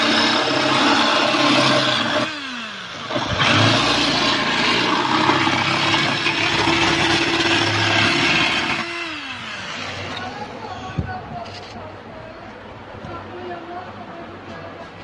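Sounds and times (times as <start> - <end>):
electric drill drilling into metal: 0.0 - 10.3.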